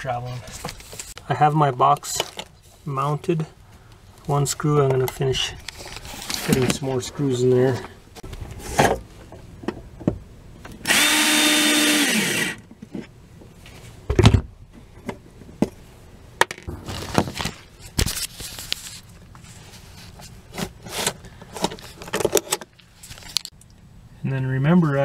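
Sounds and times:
cordless drill driving screw: 0:10.8 - 0:12.6.

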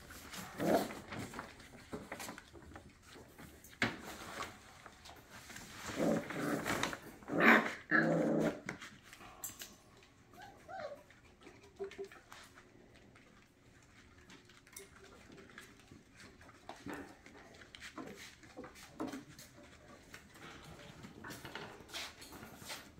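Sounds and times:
puppies growling and whimpering: 0:00.2 - 0:01.6, 0:05.7 - 0:09.0, 0:09.6 - 0:12.6.

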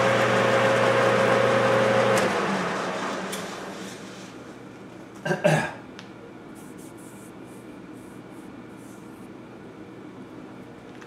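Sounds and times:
lathe spindle coasting to a stop: 0:00.0 - 0:04.2.

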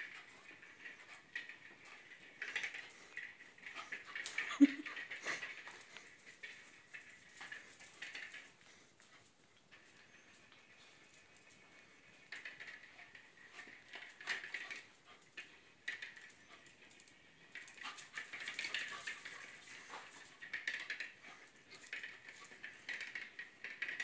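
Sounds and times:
dog claws clicking on tile: 0:12.2 - 0:24.0.

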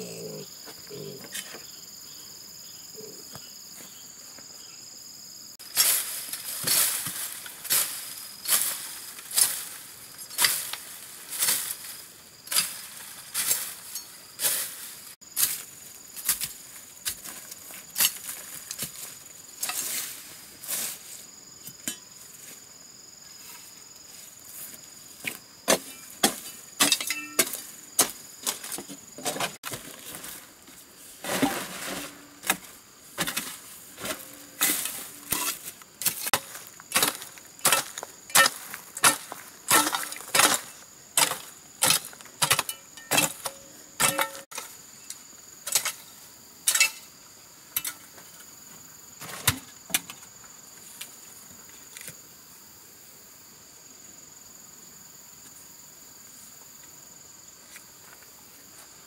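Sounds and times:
insects droning: 0:00.0 - 0:59.0
metal hoe striking earth: 0:05.6 - 0:11.9, 0:12.5 - 0:14.8, 0:15.4 - 0:20.9, 0:21.6 - 0:22.2, 0:25.2 - 0:30.4, 0:31.2 - 0:47.1, 0:47.7 - 0:48.2.

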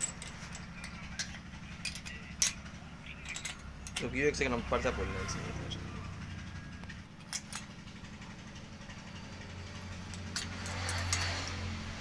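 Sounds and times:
metal spanner clicks: 0:00.0 - 0:02.6, 0:03.2 - 0:04.4, 0:10.1 - 0:11.7.

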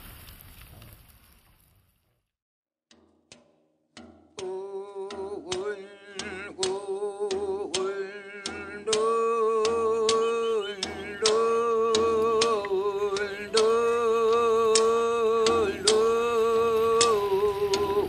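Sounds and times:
sharp regular beats: 0:02.9 - 0:18.0
person singing held notes: 0:04.4 - 0:18.0.

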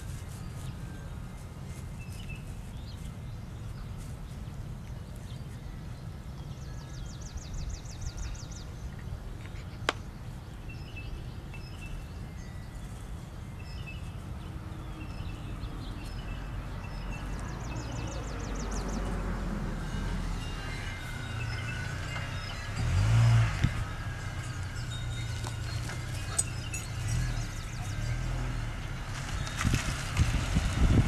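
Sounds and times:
songbirds singing: 0:00.0 - 0:31.0
steady low rumble: 0:12.9 - 0:31.0.

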